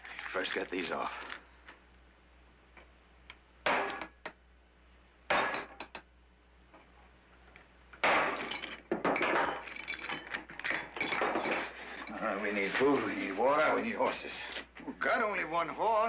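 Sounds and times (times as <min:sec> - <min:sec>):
hammer striking metal punch: 0:03.6 - 0:04.2, 0:05.3 - 0:06.0
chain rattling: 0:09.5 - 0:12.3.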